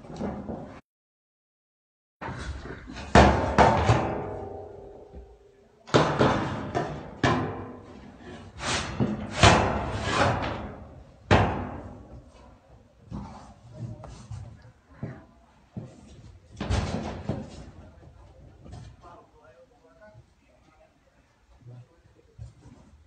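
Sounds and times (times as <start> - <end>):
metal sheeting banged and ringing: 3.0 - 12.3.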